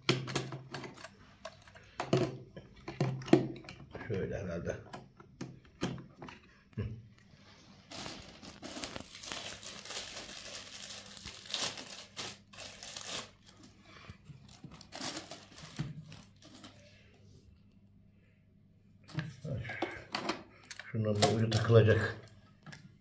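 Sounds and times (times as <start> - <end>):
plastic packaging crinkling: 7.9 - 13.8, 14.4 - 16.9.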